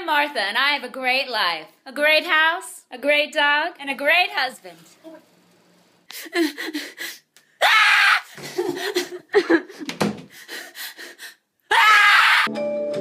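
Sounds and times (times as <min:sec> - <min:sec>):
woman gasping and whimpering: 0:06.1 - 0:07.3, 0:08.3 - 0:11.4
woman screaming: 0:07.6 - 0:08.4, 0:11.7 - 0:12.5.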